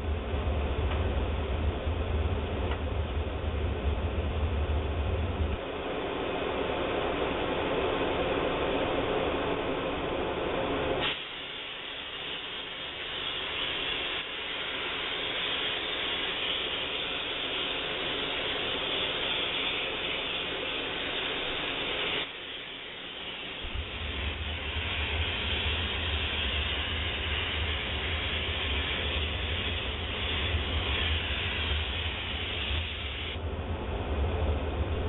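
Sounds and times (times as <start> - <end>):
steam cleaner mechanical rattle: 11.0 - 33.4
steam hissing from wand: 11.0 - 33.4.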